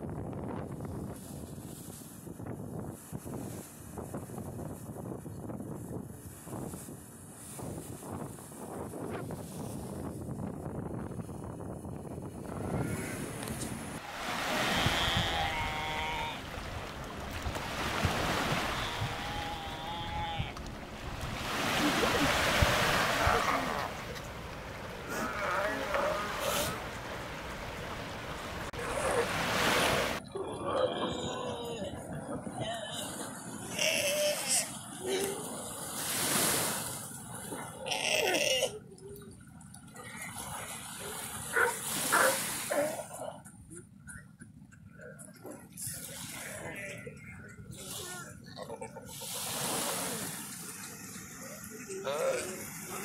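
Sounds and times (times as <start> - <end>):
wind on microphone: 0.0 - 33.2
surf: 0.0 - 53.0
small waves washing on sand: 12.0 - 30.3, 32.0 - 37.8, 38.8 - 43.2, 45.4 - 53.0
sea lion calls: 14.2 - 16.8, 17.6 - 27.2.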